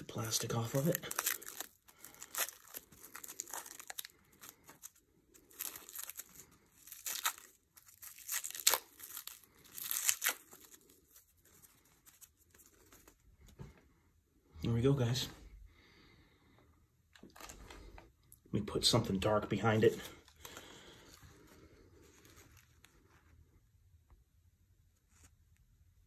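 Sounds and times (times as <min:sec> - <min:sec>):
plastic wrap crinkling and tearing: 0:00.0 - 0:13.3, 0:17.1 - 0:18.0, 0:19.7 - 0:23.2.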